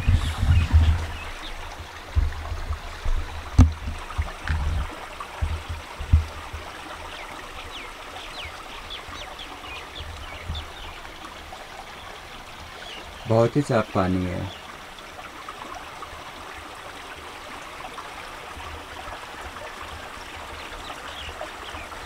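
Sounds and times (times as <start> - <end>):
low thuds: 0.0 - 6.7
stream trickling: 0.0 - 22.0.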